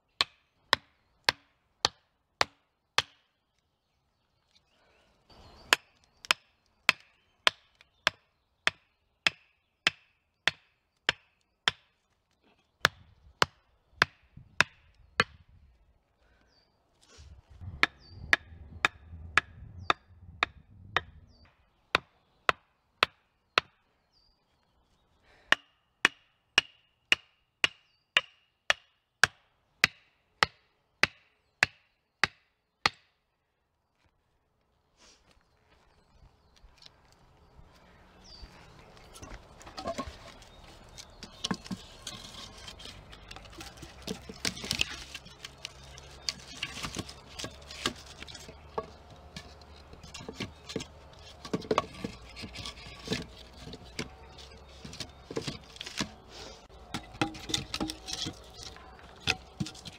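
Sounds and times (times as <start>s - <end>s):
axe chopping wood: 0.2s - 3.3s, 5.7s - 11.9s, 12.8s - 15.4s, 17.8s - 21.2s, 25.5s - 33.1s, 39.8s - 59.9s.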